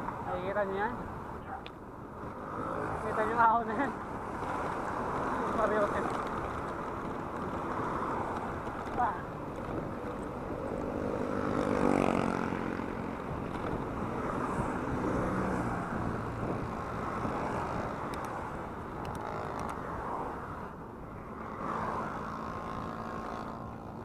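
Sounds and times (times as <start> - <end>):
highway traffic: 0.0 - 24.0
wind on microphone: 11.8 - 20.7.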